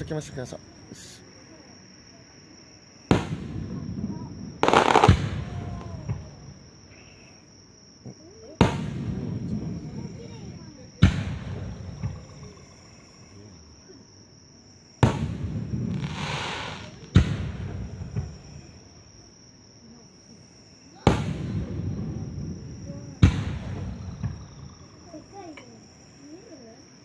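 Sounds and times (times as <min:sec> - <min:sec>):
fireworks crackling hiss: 0:00.0 - 0:01.3, 0:03.0 - 0:13.5, 0:14.8 - 0:19.2, 0:20.3 - 0:26.8
high insect trill: 0:00.0 - 0:27.0
fireworks booming: 0:03.0 - 0:06.8, 0:08.0 - 0:12.7, 0:14.9 - 0:18.9, 0:20.9 - 0:25.6.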